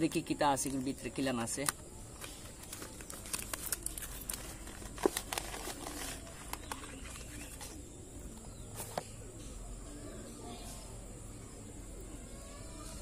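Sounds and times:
rustling of packaging: 0.5 - 7.9.

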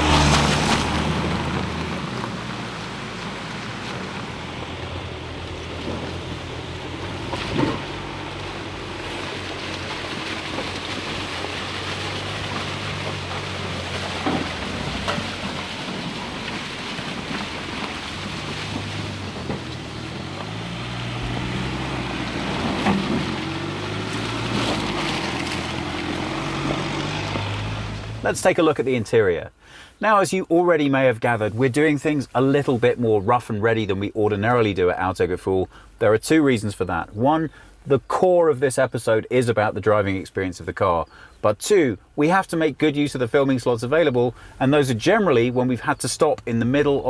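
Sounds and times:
engine running at low revs: 0.0 - 28.4
tyres sloshing in mud: 0.0 - 28.8.

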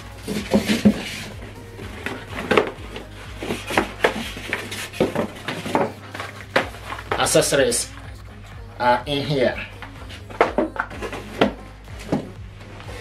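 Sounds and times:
background music: 0.0 - 13.0
cardboard and foam handling: 0.1 - 8.0.

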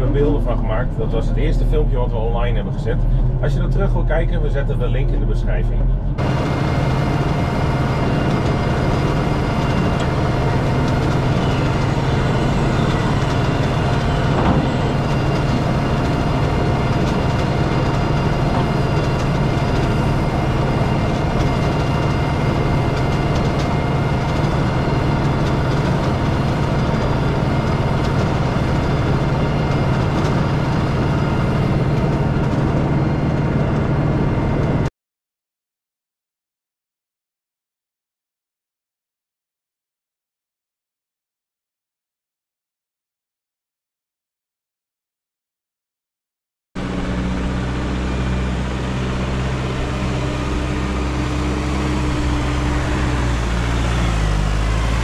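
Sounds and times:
tractor diesel engine running: 0.0 - 34.9, 46.8 - 55.0.

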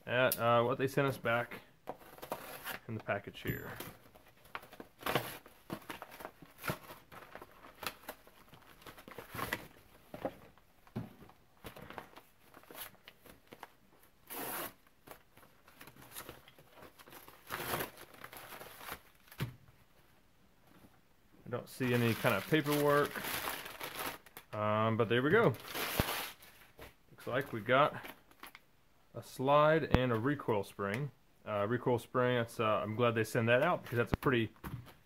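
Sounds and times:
packaging tearing and crinkling: 15.9 - 19.4, 21.8 - 24.5, 25.5 - 26.4.

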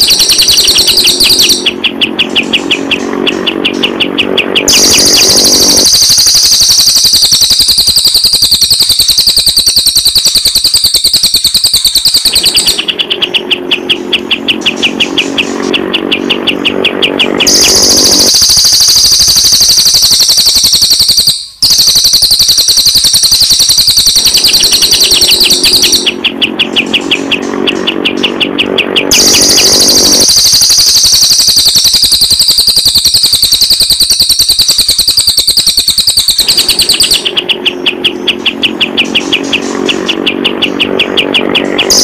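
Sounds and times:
bird chattering song: 0.0 - 7.0, 10.6 - 22.4, 24.1 - 32.7, 36.3 - 42.0.

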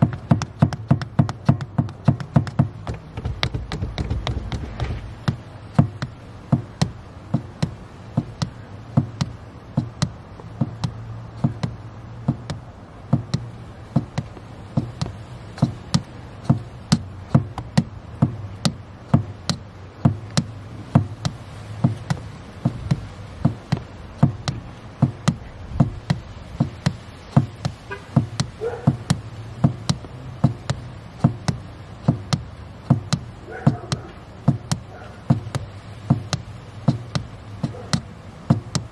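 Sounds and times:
car pedal knocking: 0.0 - 38.9.

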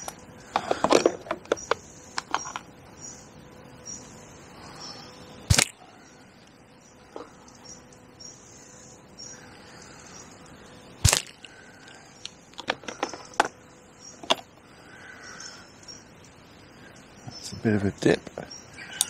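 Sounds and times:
catapult snap: 5.5 - 5.8.

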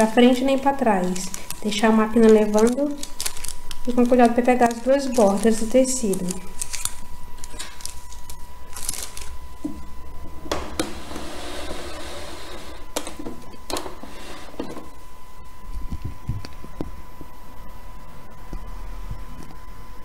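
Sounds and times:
baking paper rustling: 0.0 - 9.4.

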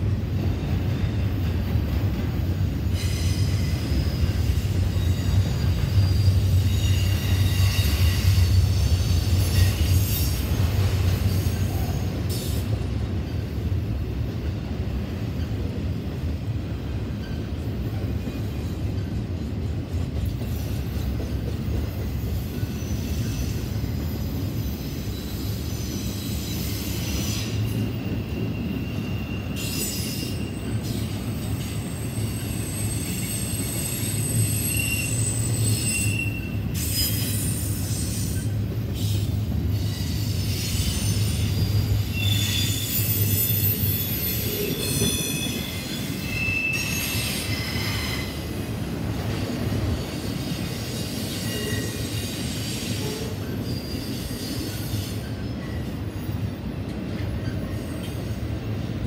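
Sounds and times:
train cars rumbling on rails: 0.0 - 59.0
high-pitched wheel squeals: 3.0 - 10.4, 22.7 - 31.1, 31.8 - 48.5.

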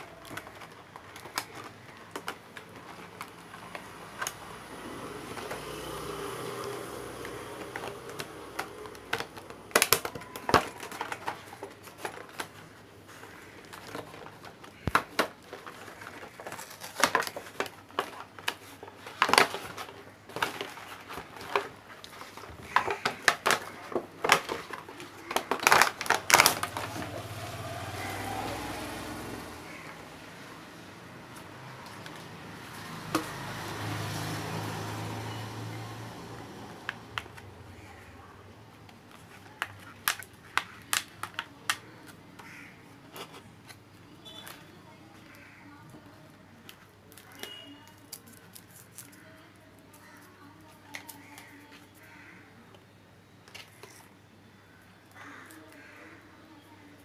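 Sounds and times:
plastic packaging crinkling: 0.0 - 5.8, 6.6 - 28.2, 38.7 - 45.5, 46.6 - 52.0
plastic toy clicks and taps: 39.6 - 42.2.

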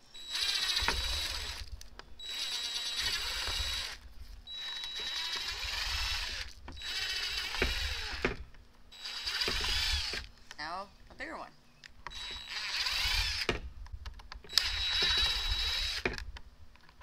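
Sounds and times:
cordless drill whining: 0.1 - 8.4, 9.0 - 10.3, 12.0 - 13.7, 14.5 - 16.2.

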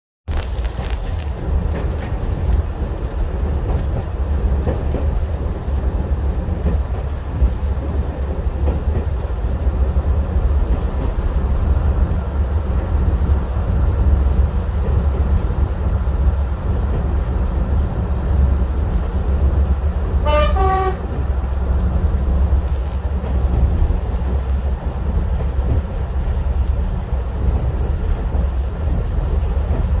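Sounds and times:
diesel railcar rumbling: 0.3 - 30.0
train horn blast: 20.2 - 21.2.

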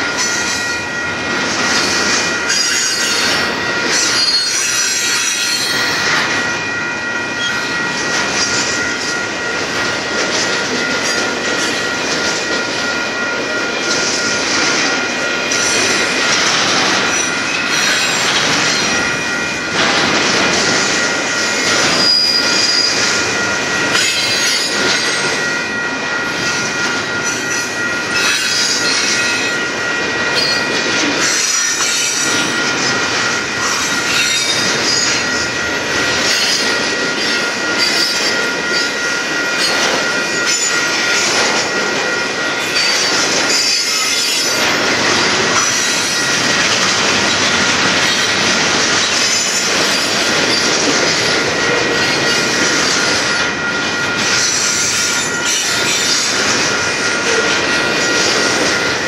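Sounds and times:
train wheels clattering on rail: 0.0 - 59.0
high wheel squeal: 1.7 - 9.2, 21.0 - 32.8, 33.6 - 35.4.

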